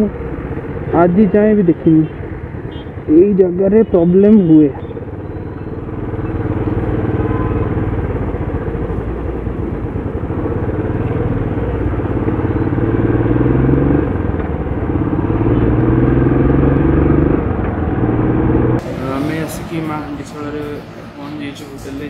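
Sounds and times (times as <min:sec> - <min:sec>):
road noise: 0:00.0 - 0:22.0
motorcycle engine running: 0:04.8 - 0:19.4.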